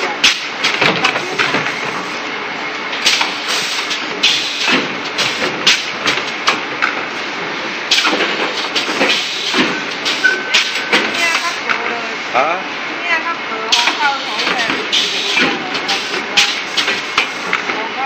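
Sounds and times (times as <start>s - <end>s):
sharp mechanical clacks and knocks: 0.0s - 2.0s, 3.0s - 7.1s, 7.9s - 11.8s, 13.7s - 17.8s
packaging machine running: 0.0s - 12.1s, 13.6s - 18.0s.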